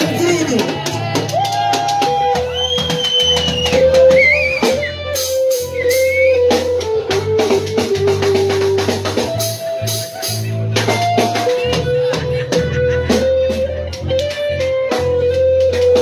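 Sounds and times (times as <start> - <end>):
bass: 0.0 - 16.0
drum kit beat: 0.0 - 16.0
electric guitar lead line: 0.0 - 16.0.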